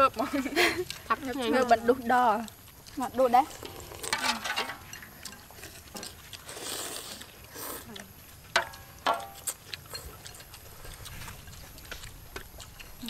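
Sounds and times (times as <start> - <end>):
soup ladled liquid sounds: 3.4 - 8.0.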